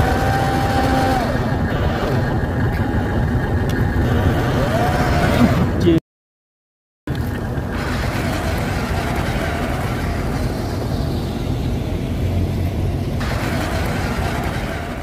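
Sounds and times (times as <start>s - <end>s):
toy truck rumbling over dirt: 7.1s - 11.2s, 13.2s - 15.0s.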